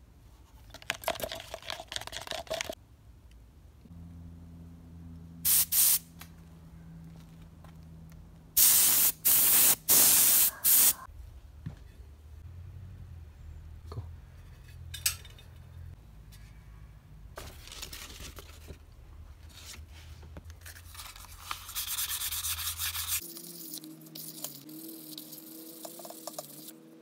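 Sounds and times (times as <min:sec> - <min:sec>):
cloth rubbing bicycle rim: 0:21.6 - 0:26.8.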